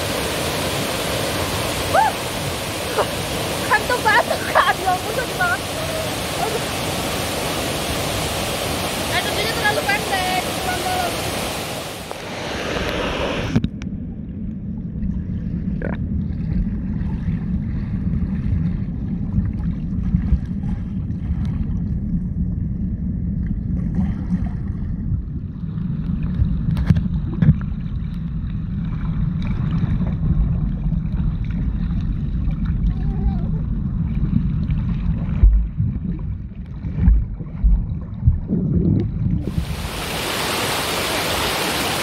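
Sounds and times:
waterfall rushing water hiss: 0:00.0 - 0:13.6, 0:39.5 - 0:42.0
low rumble of falling water: 0:00.0 - 0:42.0.

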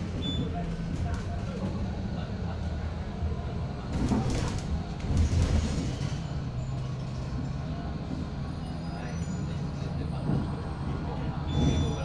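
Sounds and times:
trolleybus cabin rumble: 0:00.0 - 0:12.0.

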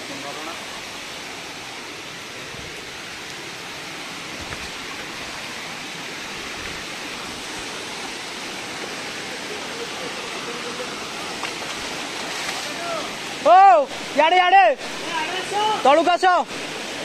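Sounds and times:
waterfall and stream rushing: 0:00.0 - 0:17.0.

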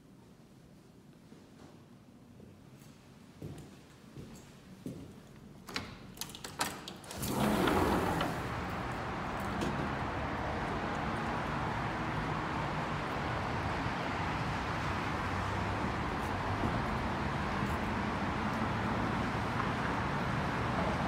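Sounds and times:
street traffic noise: 0:05.3 - 0:21.0
glass door sliding open: 0:06.8 - 0:10.2.

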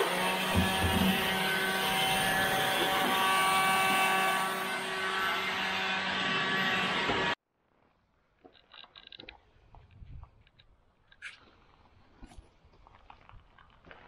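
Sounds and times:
power sander on steel: 0:00.0 - 0:07.4.

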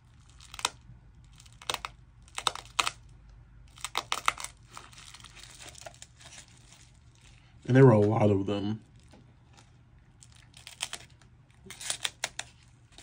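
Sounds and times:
plastic packet crinkling: 0:03.7 - 0:08.2, 0:08.8 - 0:13.0.

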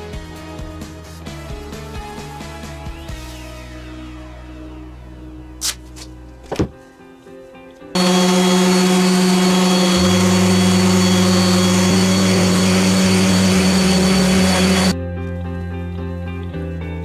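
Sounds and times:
electric power tool running: 0:08.0 - 0:15.0.

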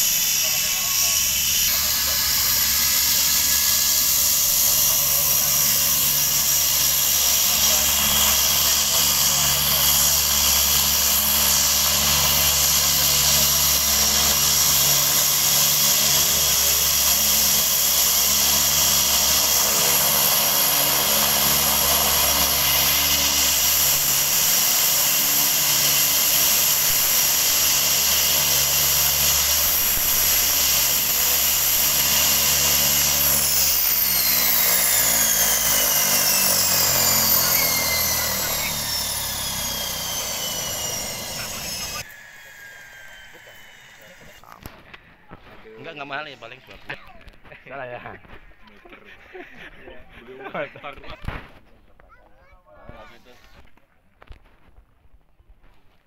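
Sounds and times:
propeller drone: 0:00.0 - 0:51.6
turboprop turbine whine: 0:00.0 - 0:51.7.

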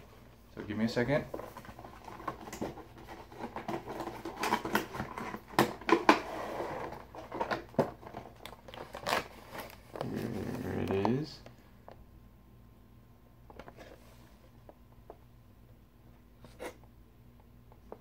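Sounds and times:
packaging crinkling and rustling: 0:01.0 - 0:11.3.

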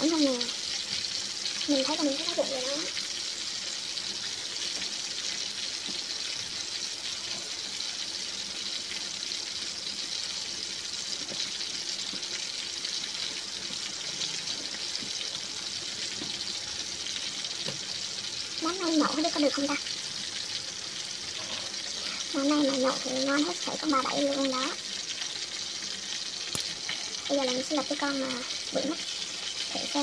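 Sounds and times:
food sizzling in hot oil: 0:00.0 - 0:30.0.

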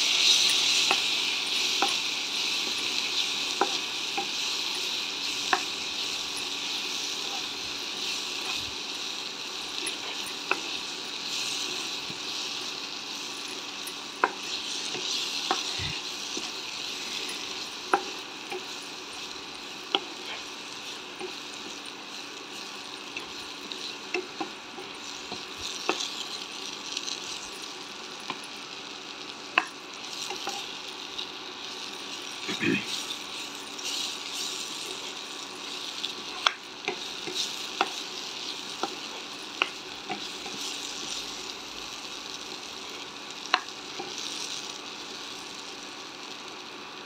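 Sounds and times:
spatula stirring: 0:00.0 - 0:28.6, 0:29.5 - 0:41.7
chillies sizzling in a pan: 0:00.0 - 0:47.0.

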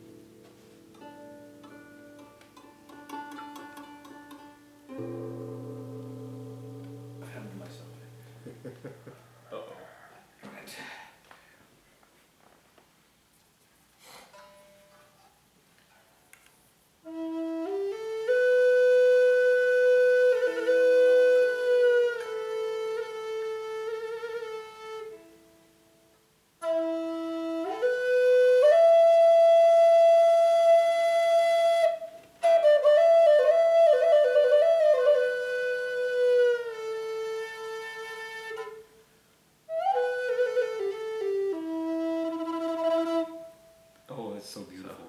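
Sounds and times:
bamboo flute playing: 0:00.0 - 0:08.5, 0:17.0 - 0:25.6, 0:26.6 - 0:39.1, 0:39.7 - 0:43.9.

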